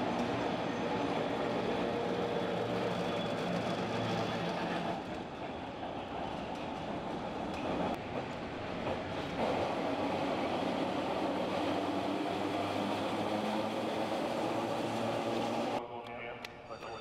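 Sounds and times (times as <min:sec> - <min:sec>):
tram running on rails: 0:00.0 - 0:15.8.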